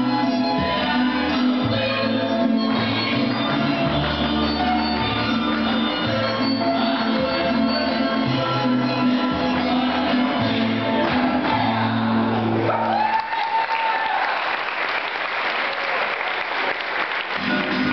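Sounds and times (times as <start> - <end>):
folk dance music: 0.0 - 13.1, 17.1 - 17.9
audience applauding: 12.8 - 17.9.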